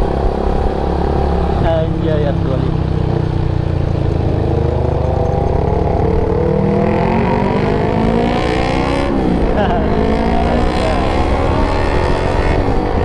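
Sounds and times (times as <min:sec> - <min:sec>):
motorcycle engine accelerating: 0:00.0 - 0:13.0
wind rush on microphone: 0:10.2 - 0:13.0.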